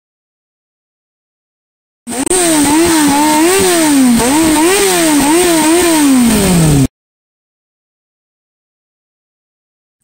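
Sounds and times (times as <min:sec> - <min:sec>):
motorcycle engine revving: 0:02.1 - 0:06.9.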